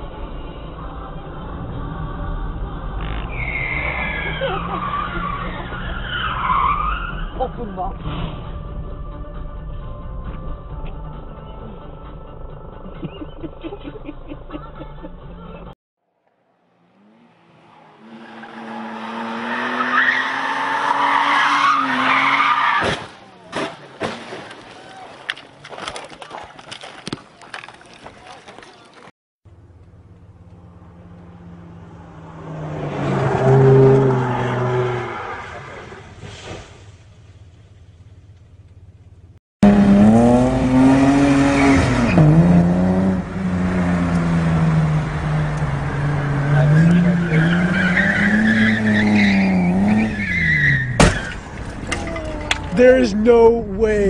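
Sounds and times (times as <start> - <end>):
car engine: 0.0 - 11.2, 15.2 - 24.0, 29.5 - 54.0
car engine revving high: 39.6 - 50.4
tyres squealing: 46.4 - 52.9.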